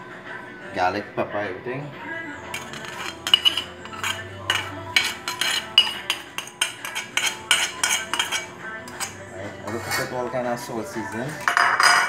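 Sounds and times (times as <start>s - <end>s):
knife scraping ceramic plate: 2.5s - 10.2s.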